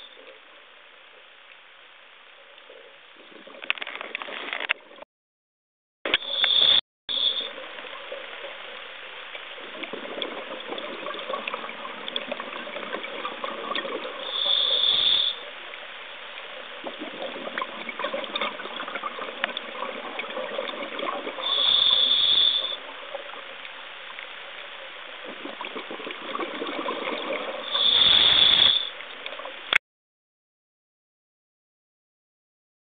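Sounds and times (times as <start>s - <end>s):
gushes of exhaled bubbles: 9.5s - 15.6s, 16.7s - 23.5s, 25.2s - 29.1s
diver breathing through regulator: 14.2s - 15.4s, 21.4s - 22.8s, 27.6s - 29.0s.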